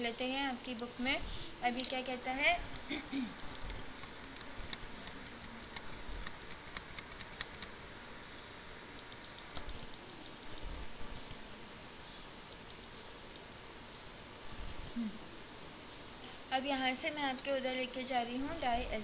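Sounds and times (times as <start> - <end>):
computer mouse clicking: 2.7 - 7.8, 8.9 - 11.4, 12.5 - 13.5.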